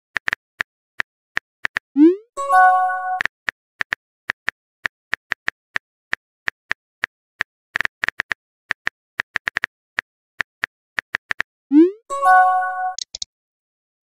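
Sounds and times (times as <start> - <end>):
phone keyboard typing clicks: 12.9 - 13.3.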